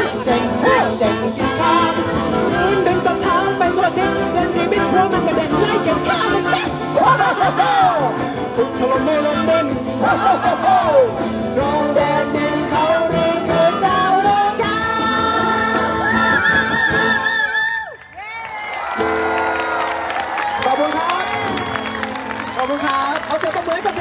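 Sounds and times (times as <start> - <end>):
man and woman singing: 0.0 - 17.8
live band with acoustic guitars: 0.0 - 18.0, 18.6 - 24.0.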